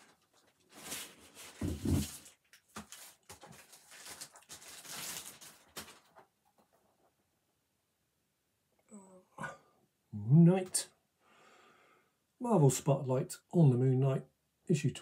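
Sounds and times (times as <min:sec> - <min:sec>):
packaging rustling: 0:00.0 - 0:07.0.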